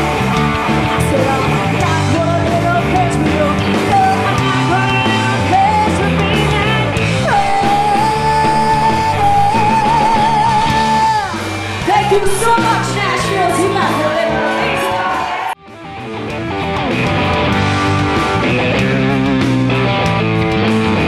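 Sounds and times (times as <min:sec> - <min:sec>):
bass guitar: 0:00.0 - 0:21.0
drums: 0:00.0 - 0:21.0
electric guitar: 0:00.0 - 0:21.0
woman singing lead vocal: 0:00.9 - 0:15.2.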